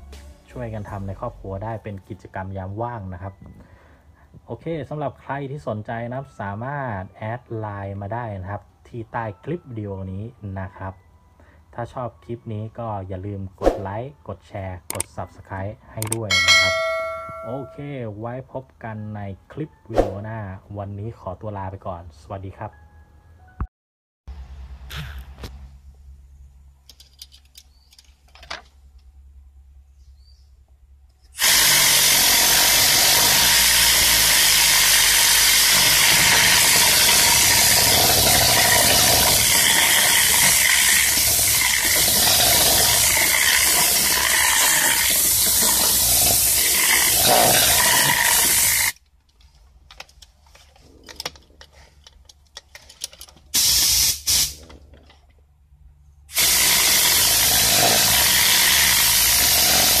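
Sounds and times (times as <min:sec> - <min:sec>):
compressed air gun hissing: 0:31.3 - 0:49.0, 0:53.5 - 0:54.6, 0:56.3 - 1:00.0.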